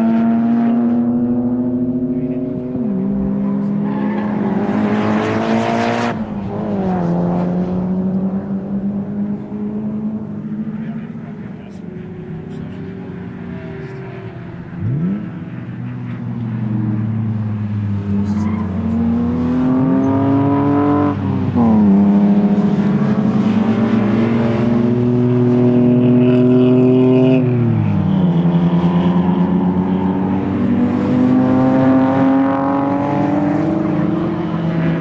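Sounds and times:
race car engine revving: 0.0s - 35.0s.

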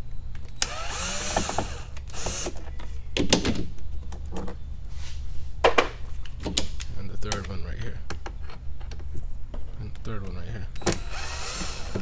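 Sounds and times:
power drill whirring: 0.6s - 2.6s, 10.8s - 12.0s.

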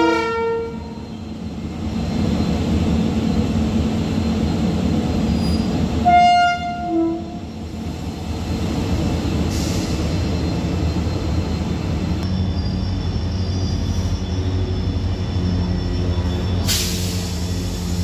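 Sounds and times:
train horn blasts: 0.0s - 0.9s, 6.0s - 7.4s
train wheels rumbling on rails: 0.0s - 18.0s.

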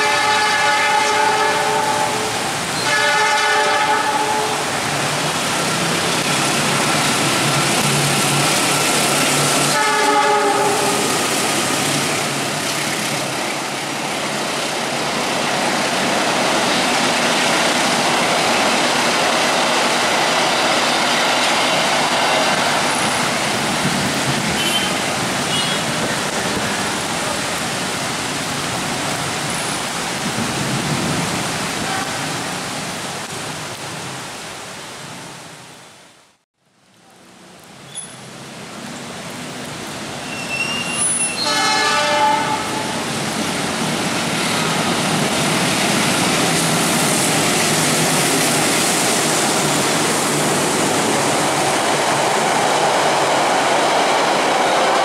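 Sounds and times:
locomotive horn blasts: 0.0s - 4.6s, 9.7s - 11.1s, 41.0s - 42.9s
train passing: 0.0s - 33.7s, 38.0s - 55.0s
heavy rain hissing: 0.0s - 35.7s, 37.7s - 54.5s.

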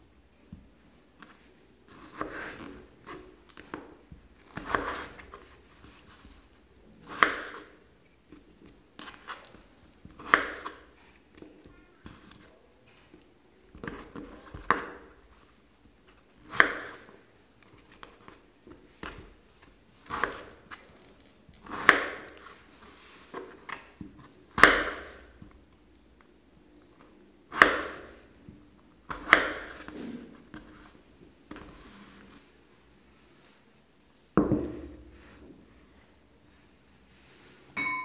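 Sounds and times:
knife slicing potatoes: 4.5s - 5.4s, 7.0s - 7.7s, 10.2s - 11.0s.

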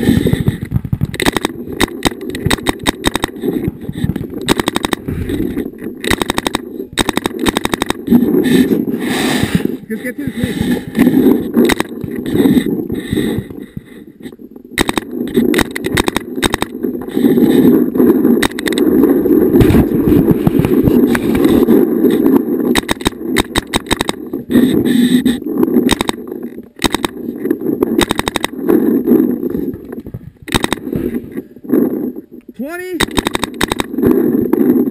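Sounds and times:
paintball markers firing: 0.1s - 8.2s, 11.6s - 12.3s, 14.8s - 16.8s, 18.4s - 18.9s, 22.7s - 27.3s, 28.0s - 28.7s, 30.5s - 31.0s, 33.0s - 34.6s.

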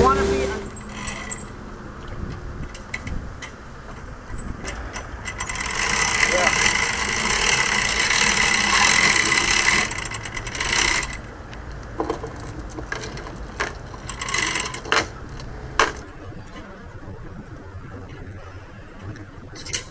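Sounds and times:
winch ratchet clicking: 4.3s - 11.2s, 12.9s - 16.0s.

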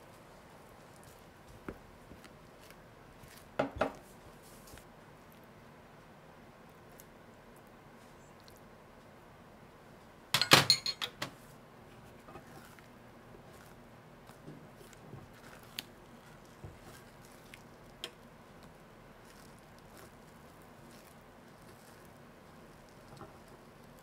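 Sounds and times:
metal tongs clinking: 10.4s - 11.2s.

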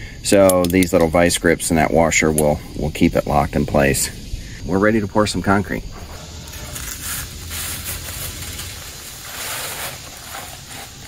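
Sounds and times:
dry concrete mix pouring: 6.0s - 11.0s.

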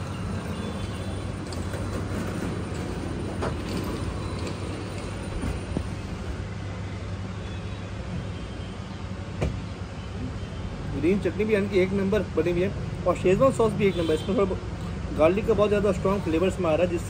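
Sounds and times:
street traffic noise: 0.0s - 17.0s.

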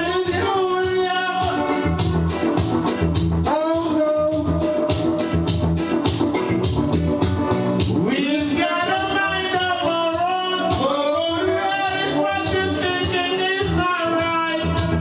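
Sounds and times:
man singing into a microphone: 0.0s - 2.6s, 3.4s - 5.6s, 7.9s - 15.0s
karaoke backing track with beat: 0.0s - 15.0s.

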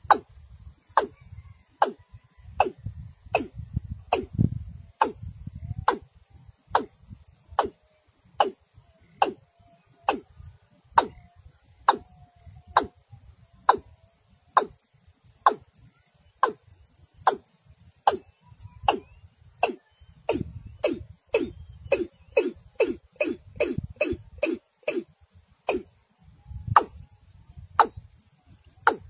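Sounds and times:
bird calling sharp tock: 5.0s - 6.1s, 10.0s - 10.3s, 11.8s - 12.9s, 17.2s - 25.1s, 25.7s - 25.9s.

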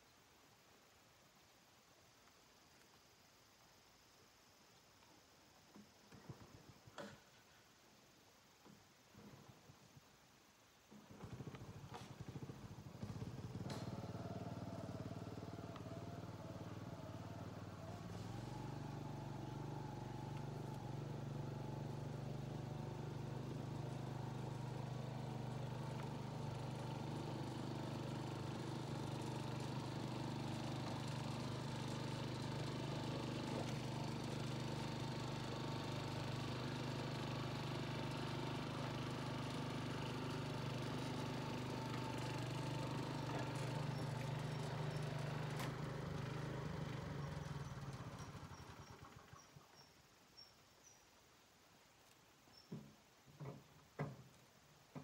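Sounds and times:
small engine running: 11.0s - 49.9s.

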